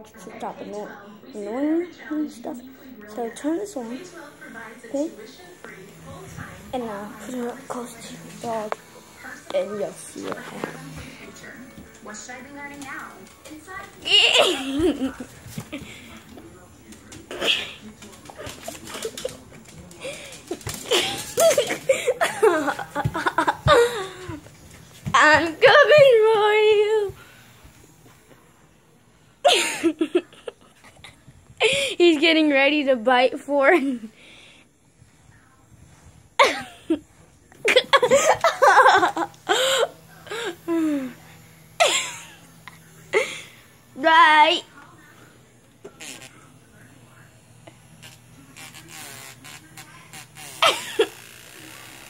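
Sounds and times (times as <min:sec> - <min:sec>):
person giggling and laughing: 0:14.0 - 0:15.2, 0:20.5 - 0:24.4, 0:29.4 - 0:31.8, 0:37.6 - 0:39.9.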